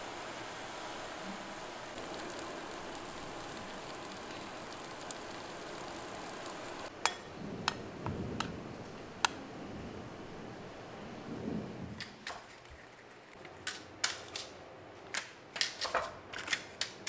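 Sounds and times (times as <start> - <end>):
rain on pavement: 0.0 - 6.9.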